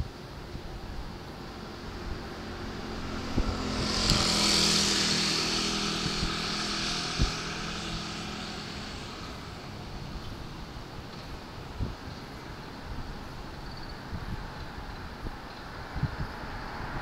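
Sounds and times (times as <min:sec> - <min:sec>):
vehicle passing by: 0:00.8 - 0:11.1, 0:15.3 - 0:17.0.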